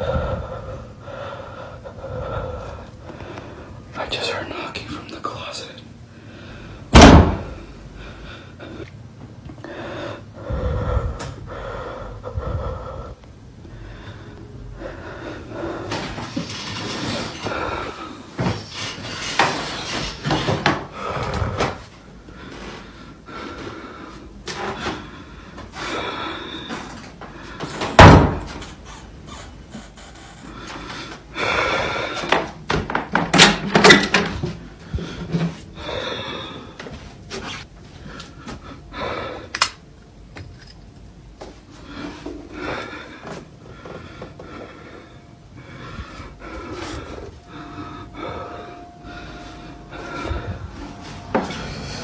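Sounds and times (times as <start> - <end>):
heavy thump: 7.0 - 7.5.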